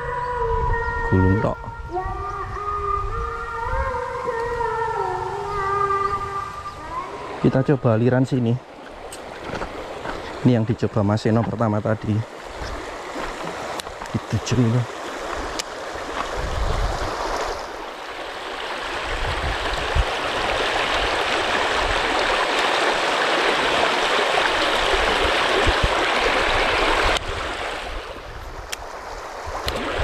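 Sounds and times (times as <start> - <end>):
river rushing over stones: 7.0 - 30.0.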